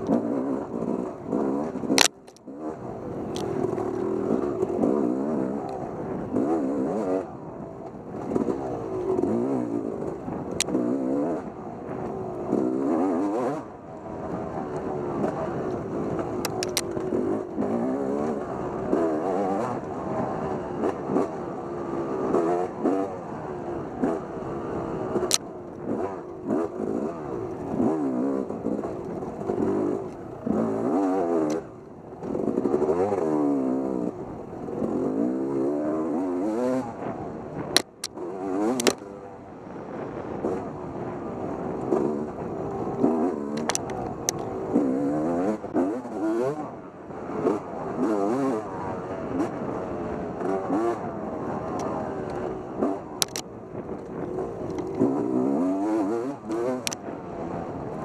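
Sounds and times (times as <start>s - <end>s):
off-road motorcycle engine revving: 0.0s - 58.0s.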